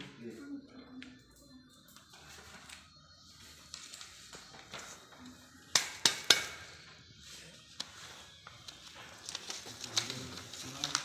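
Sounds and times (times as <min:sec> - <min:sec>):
paper rustling: 0:02.0 - 0:05.4, 0:07.2 - 0:11.0.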